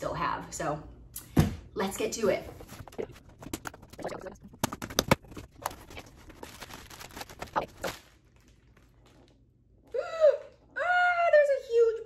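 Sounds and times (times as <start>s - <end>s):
cardboard rustling: 2.5s - 9.2s.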